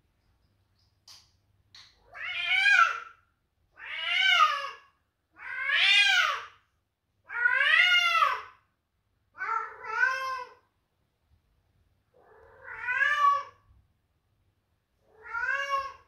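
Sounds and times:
cat meowing: 2.0s - 3.2s, 9.4s - 10.6s, 12.2s - 13.6s, 15.1s - 16.0s.

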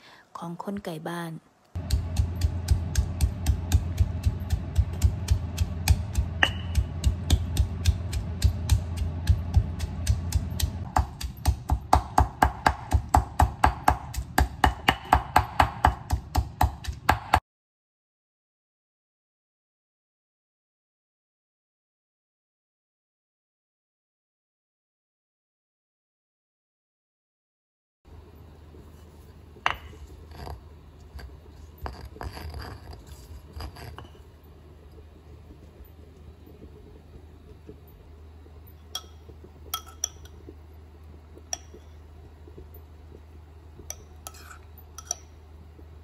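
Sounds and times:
stone pestle pounding in mortar: 1.8s - 17.4s.

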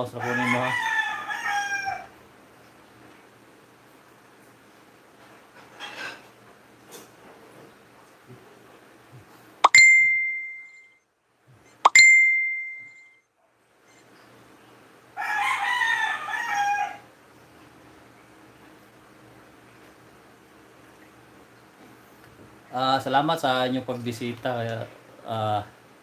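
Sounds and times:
rooster crowing: 0.2s - 2.2s, 15.2s - 17.1s
high-pitched dings: 9.6s - 10.9s, 11.8s - 13.2s.

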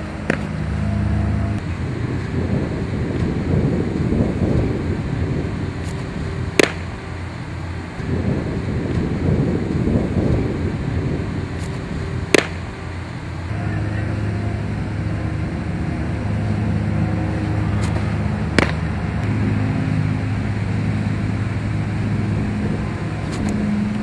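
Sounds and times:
vehicle engine idling: 0.0s - 24.0s
baseball popping into leather mitt: 0.2s - 0.6s, 5.8s - 6.9s, 11.6s - 12.6s, 17.8s - 18.9s.

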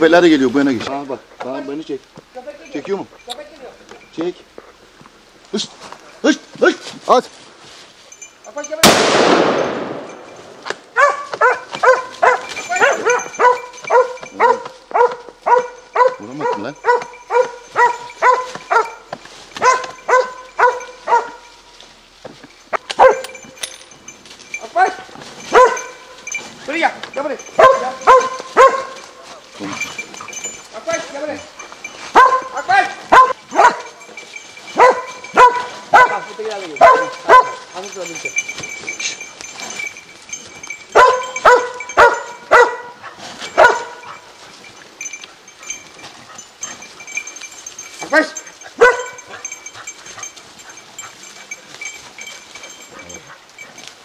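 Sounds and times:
dog barking: 10.9s - 21.6s, 22.8s - 23.5s, 25.4s - 26.2s, 27.6s - 29.2s, 32.1s - 34.1s, 34.7s - 37.8s, 40.9s - 44.3s, 48.2s - 49.6s.

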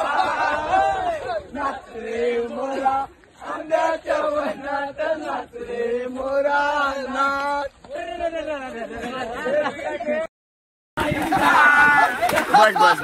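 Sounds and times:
men chanting: 0.0s - 10.3s.

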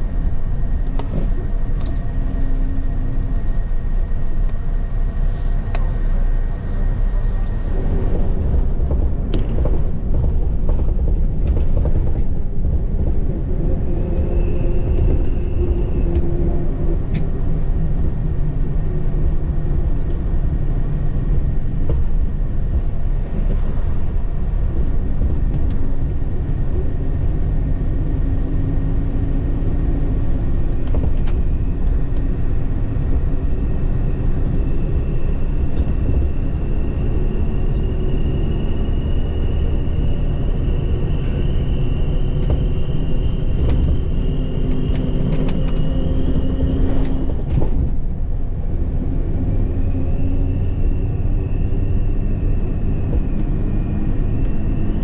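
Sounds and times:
bus engine and road rumble: 0.0s - 55.0s.

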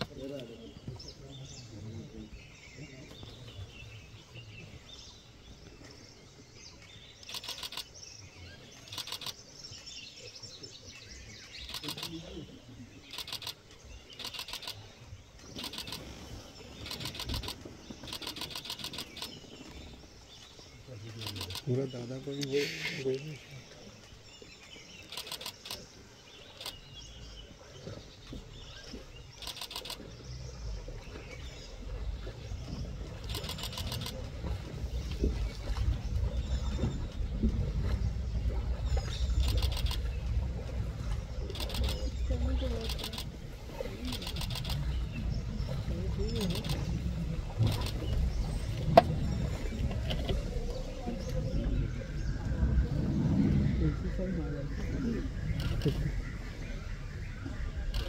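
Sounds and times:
birds chirping: 0.0s - 58.0s
insects: 6.9s - 9.8s, 11.0s - 23.4s, 24.0s - 27.4s, 28.1s - 30.2s, 32.6s - 34.2s, 41.4s - 43.4s, 45.9s - 47.0s
rapid clicks: 7.2s - 7.9s, 8.8s - 9.4s, 11.6s - 12.2s, 13.1s - 14.8s, 15.6s - 16.1s, 16.8s - 19.3s, 21.2s - 21.7s, 25.1s - 25.8s, 29.4s - 30.0s, 33.2s - 34.2s, 41.5s - 42.0s, 46.4s - 46.9s
low rumble: 30.0s - 58.0s.

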